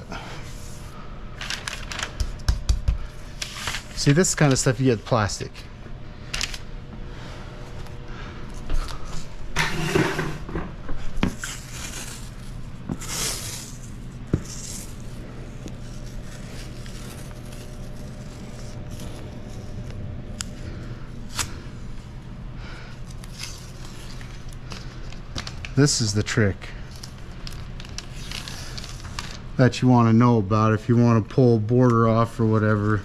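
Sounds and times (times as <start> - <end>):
steady low hum: 0.0 - 33.0
tape and plastic rustling: 1.4 - 5.0, 11.2 - 20.6, 22.9 - 29.7.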